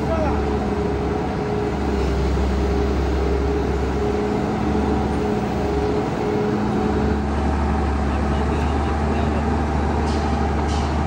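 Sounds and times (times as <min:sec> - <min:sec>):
excavator diesel engine idling: 0:00.0 - 0:11.0.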